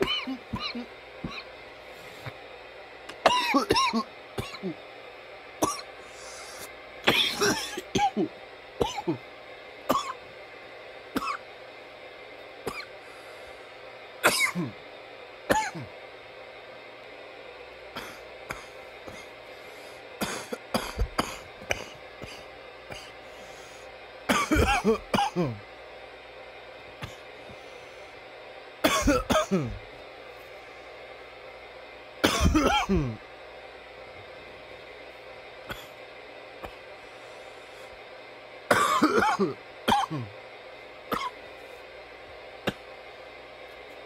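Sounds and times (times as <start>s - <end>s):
man coughing: 0.0s - 1.5s, 3.3s - 4.8s, 7.1s - 9.2s, 14.2s - 14.8s, 15.5s - 15.9s, 18.0s - 19.3s, 20.2s - 23.1s, 24.3s - 25.6s, 28.8s - 29.8s, 32.2s - 33.2s, 38.7s - 40.4s, 41.1s - 41.4s.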